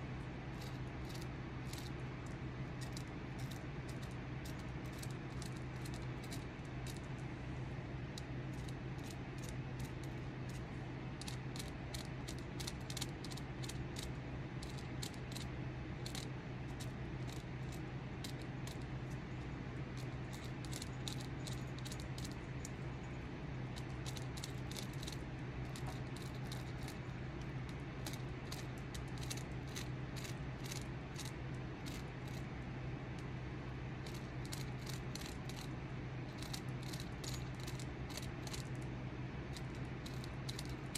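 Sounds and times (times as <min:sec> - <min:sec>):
steady low hum: 0:00.0 - 0:40.9.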